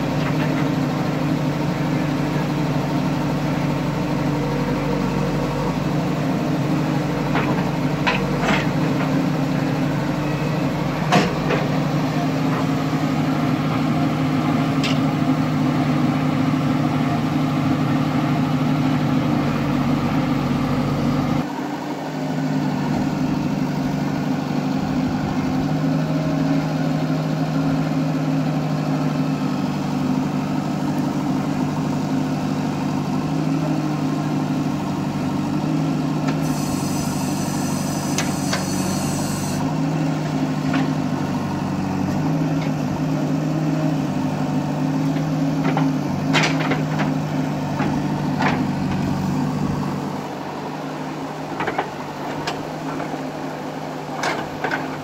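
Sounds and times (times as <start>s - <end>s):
backhoe digging: 0.0s - 21.5s, 29.4s - 50.4s, 51.0s - 55.0s
diesel engine running: 0.0s - 55.0s.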